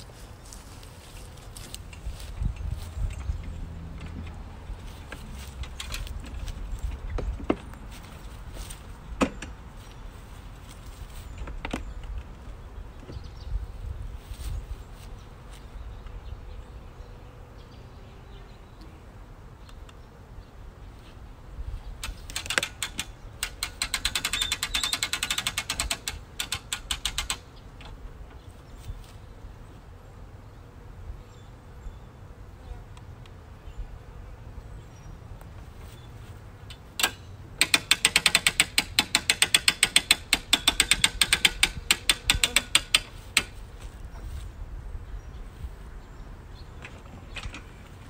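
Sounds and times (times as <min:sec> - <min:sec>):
winch ratcheting: 0:22.0 - 0:27.4.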